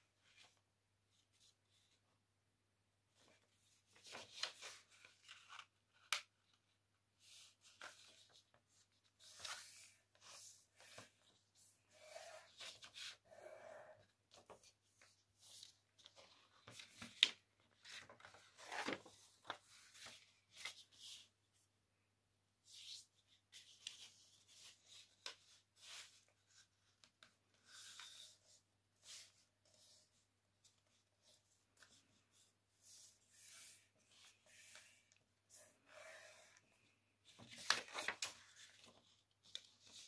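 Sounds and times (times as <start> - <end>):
paper rustling and crinkling: 3.2 - 11.6, 14.3 - 21.3, 37.2 - 40.0
paper crackles: 37.3 - 40.0.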